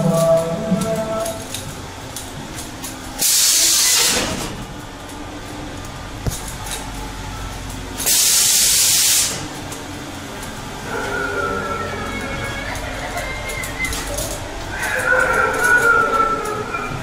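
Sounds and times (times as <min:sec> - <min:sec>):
loud hissing bursts: 0:03.2 - 0:04.5, 0:08.0 - 0:09.5.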